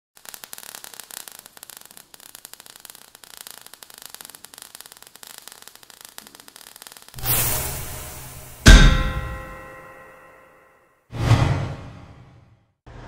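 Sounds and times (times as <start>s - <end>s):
crackling sparks: 0.2s - 10.2s.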